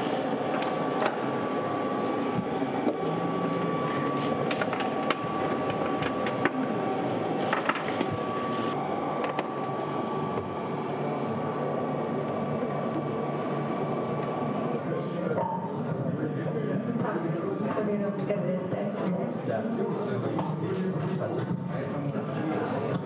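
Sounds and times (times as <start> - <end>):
machinery hum and hiss: 0.0 - 18.1.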